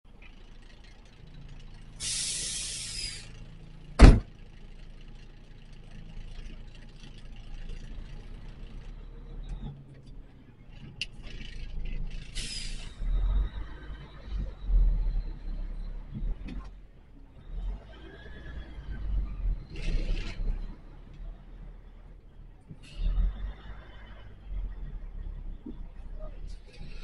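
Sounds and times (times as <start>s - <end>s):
truck engine running: 0.1s - 27.0s
air brake hiss: 2.0s - 3.4s, 12.4s - 13.0s
loud sharp thump: 4.0s - 4.3s.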